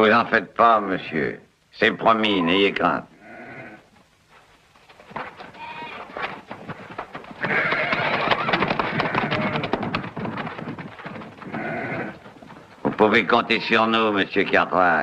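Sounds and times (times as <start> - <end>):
horses hooves galloping: 3.8 - 15.0
sheep bleating: 11.4 - 12.2.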